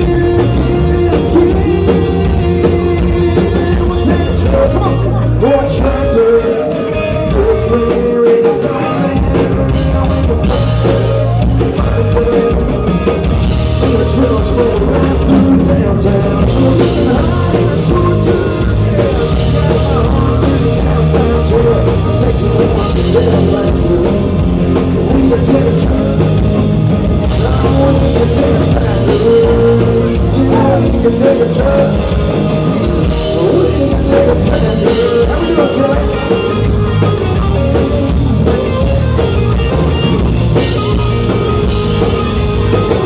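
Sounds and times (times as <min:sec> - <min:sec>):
country band playing live: 0:00.0 - 0:43.0.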